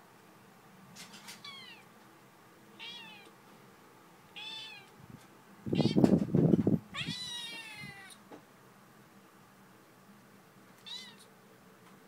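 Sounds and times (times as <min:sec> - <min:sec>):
kitten meowing faintly: 0:01.4 - 0:01.9, 0:02.8 - 0:03.3, 0:04.4 - 0:04.9, 0:05.8 - 0:06.1, 0:06.9 - 0:08.2, 0:10.8 - 0:11.3.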